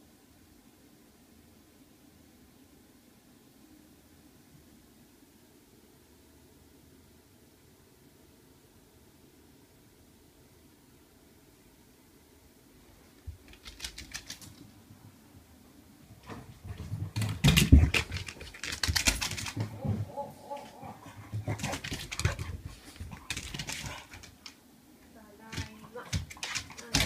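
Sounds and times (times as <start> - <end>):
dog claws clicking on wooden floor: 13.4 - 14.7, 16.3 - 20.0, 20.6 - 24.6, 25.5 - 27.0
paw thumps: 16.2 - 24.5, 25.5 - 27.0.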